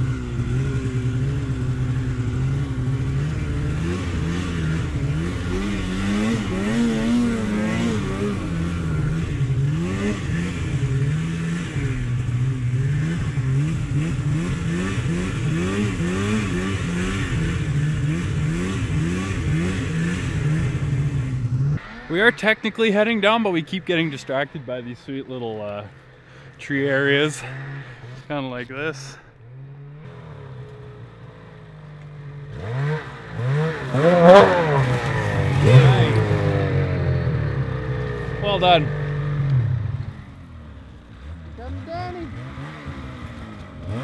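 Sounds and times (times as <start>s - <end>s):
snowmobile engine revving: 0.0s - 44.0s.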